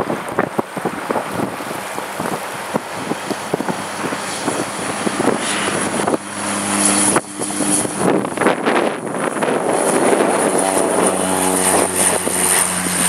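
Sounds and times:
turboprop engine running: 0:00.0 - 0:13.0.

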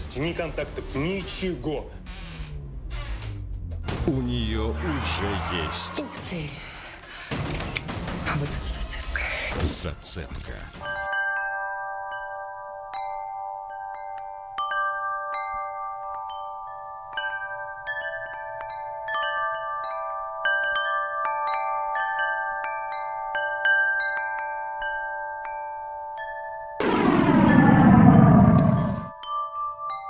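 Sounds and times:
wind chimes ringing: 0:11.0 - 0:26.8.

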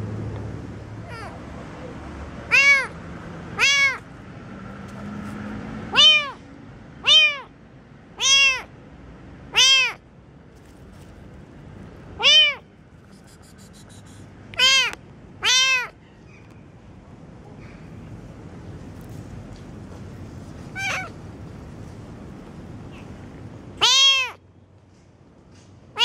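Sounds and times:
kitten meowing: 0:02.5 - 0:03.0, 0:03.6 - 0:04.0, 0:05.9 - 0:06.4, 0:07.0 - 0:07.5, 0:08.2 - 0:08.7, 0:09.6 - 0:10.0, 0:12.2 - 0:16.0, 0:20.7 - 0:21.2, 0:23.8 - 0:24.4.

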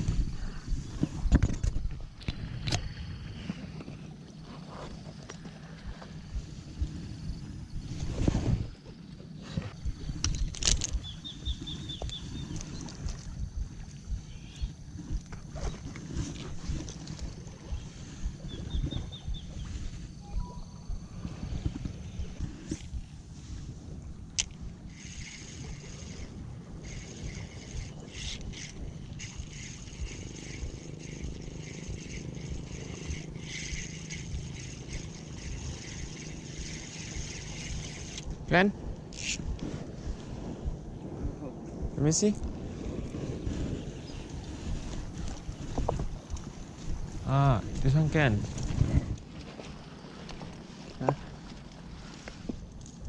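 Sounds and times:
wind on microphone: 0:00.0 - 0:53.0
fishing reel gears whirring: 0:09.8 - 0:23.2, 0:24.0 - 0:40.0, 0:43.8 - 0:53.0
bird calling: 0:10.8 - 0:13.2, 0:14.2 - 0:14.8, 0:17.6 - 0:21.2.

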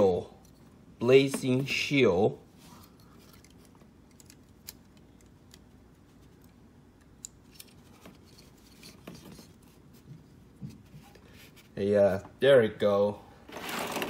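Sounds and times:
small plastic parts clicking: 0:03.2 - 0:05.8.

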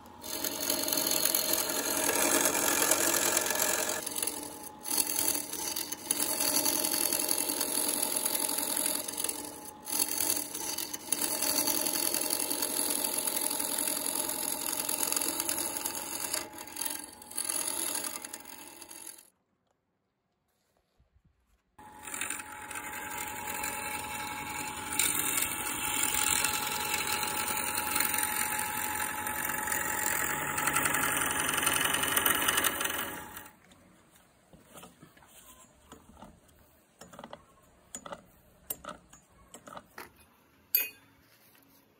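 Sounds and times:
gouge scraping spinning wood: 0:00.0 - 0:19.3, 0:21.8 - 0:33.6
wood lathe rattling: 0:00.2 - 0:19.3, 0:21.8 - 0:33.5.

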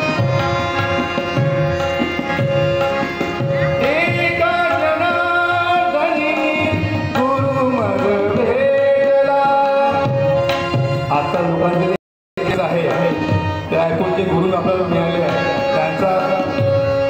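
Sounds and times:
harmonium drone: 0:00.0 - 0:17.0
tabla rhythm: 0:00.0 - 0:17.0
man singing: 0:03.6 - 0:17.0.

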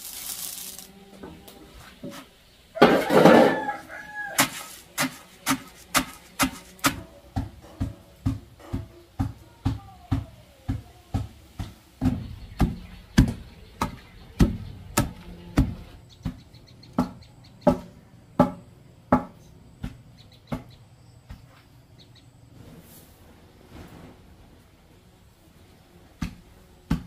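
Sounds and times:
pestle pounding in wooden mortar: 0:04.2 - 0:20.7, 0:26.2 - 0:27.0.

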